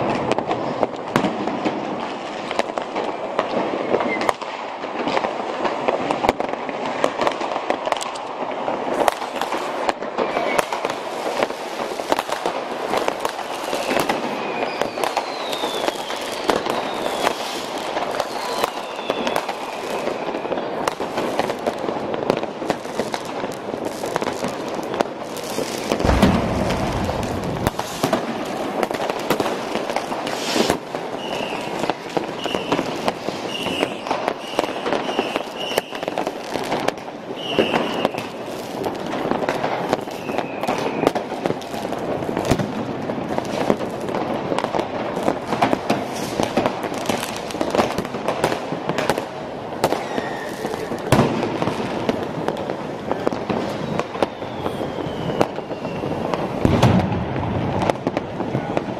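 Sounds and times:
firecrackers crackling: 0:00.0 - 0:58.9
short high whistles: 0:13.5 - 0:17.4, 0:18.3 - 0:20.2, 0:31.2 - 0:31.7, 0:32.4 - 0:32.8, 0:33.4 - 0:36.0, 0:37.4 - 0:38.2, 0:50.0 - 0:50.8, 0:53.7 - 0:56.2
deep firework boom: 0:25.8 - 0:29.4, 0:56.6 - 0:58.0
sharp firework bang: 0:25.8 - 0:29.6, 0:56.6 - 0:58.8.

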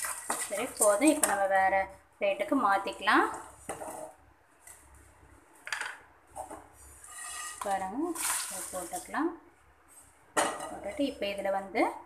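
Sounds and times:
wooden spatula scraping a pan: 0:03.3 - 0:04.2, 0:06.4 - 0:09.2.

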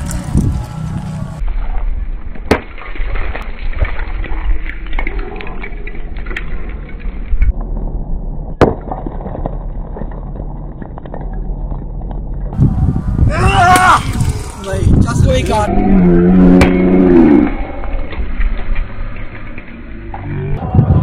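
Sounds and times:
dull muffled rumble: 0:05.8 - 0:21.0.

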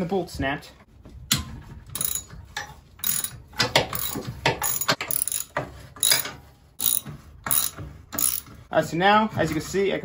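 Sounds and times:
socket ratchet clicking: 0:03.0 - 0:03.3, 0:03.9 - 0:08.4.

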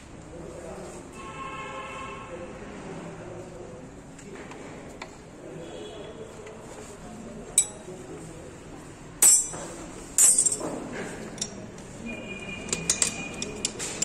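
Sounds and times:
hand tools clinking on metal: 0:07.6 - 0:07.9, 0:09.2 - 0:11.7.

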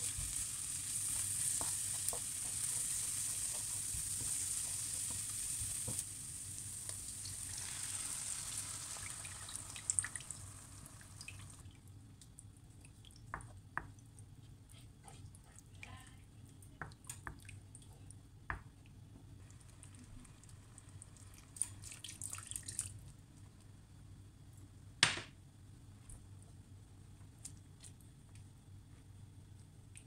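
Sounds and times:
sauce simmering with small pops: 0:00.0 - 0:14.3.

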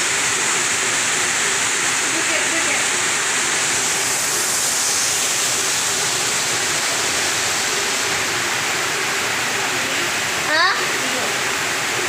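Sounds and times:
heavy rain pouring: 0:00.0 - 0:12.0.

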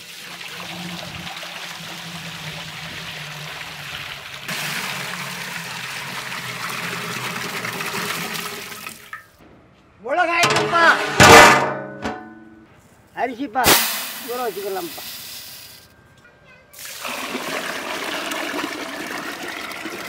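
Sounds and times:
water pouring into metal pot: 0:00.0 - 0:09.3, 0:16.8 - 0:20.0.

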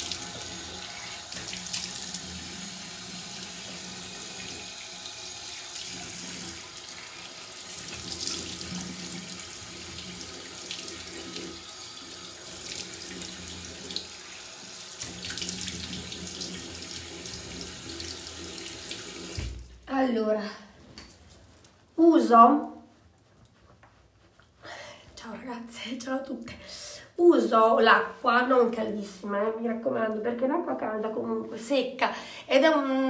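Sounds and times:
tap water running into a sink: 0:00.0 - 0:19.8.

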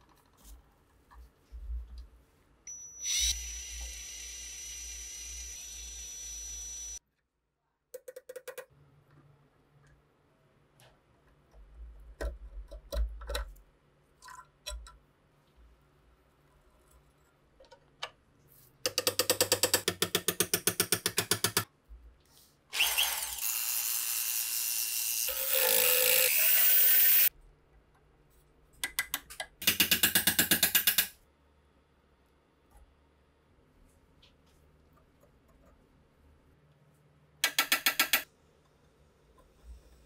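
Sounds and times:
metal clicks and taps: 0:28.8 - 0:31.2.

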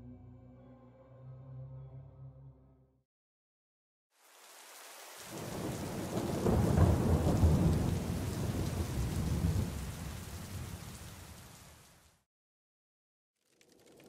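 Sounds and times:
rain hiss: 0:04.2 - 0:12.2
thunder rolling: 0:05.4 - 0:11.0.

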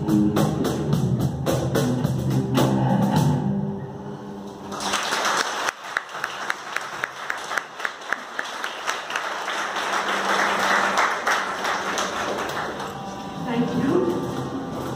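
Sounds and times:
close sharp claps: 0:04.7 - 0:13.0
audience applauding: 0:04.7 - 0:13.2.

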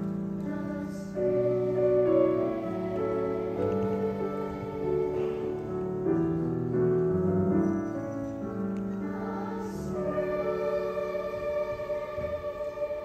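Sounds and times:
children's choir singing: 0:00.0 - 0:13.0.

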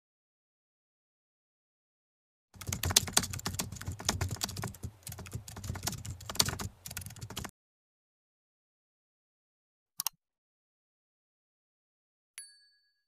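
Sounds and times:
keyboard typing clicks: 0:02.6 - 0:07.5.

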